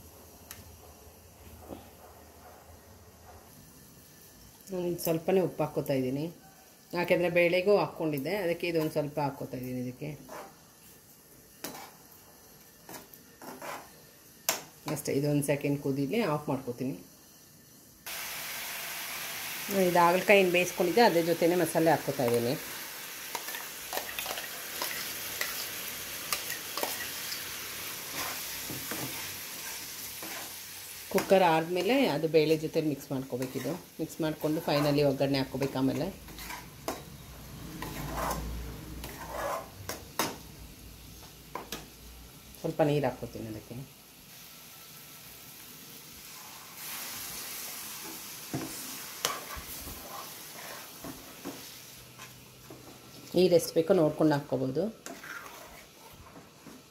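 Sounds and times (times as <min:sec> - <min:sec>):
pan sizzling: 0:03.5 - 0:56.9
steel spoon clinking and scraping: 0:26.3 - 0:27.4, 0:36.3 - 0:37.2.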